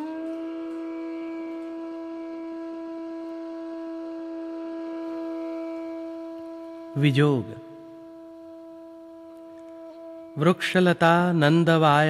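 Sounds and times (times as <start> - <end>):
long reedy instrumental note: 0.0 - 11.7.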